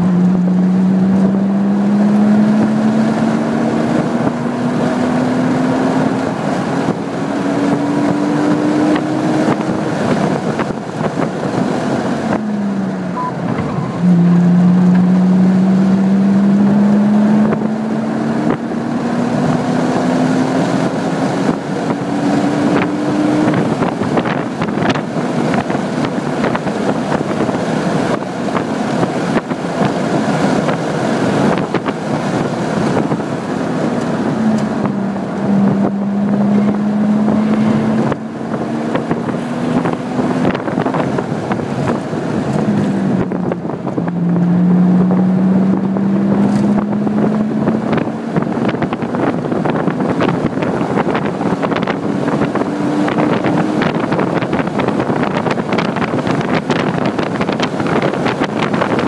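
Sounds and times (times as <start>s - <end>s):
car engine accelerating: 0.0s - 59.0s
wind and tyre noise: 0.0s - 59.0s.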